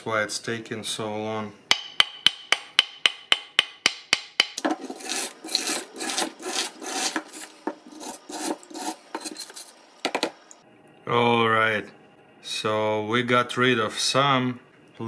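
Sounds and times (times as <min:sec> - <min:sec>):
wire brush scrubbing rust: 0:04.6 - 0:10.0.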